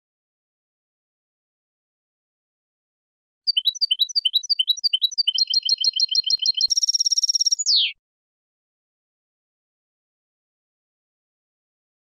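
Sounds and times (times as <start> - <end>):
goldfinch singing: 3.5 - 8.0.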